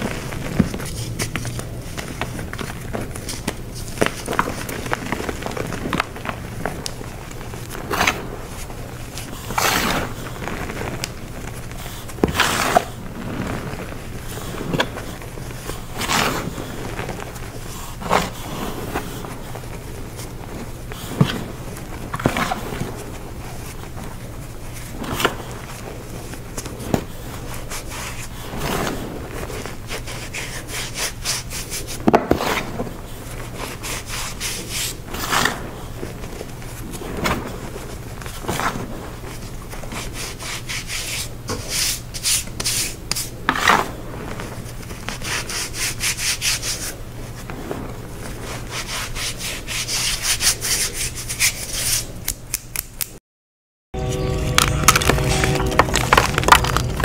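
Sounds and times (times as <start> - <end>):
chalk blocks crunching and crumbling: 0.0 - 46.9, 54.6 - 57.0.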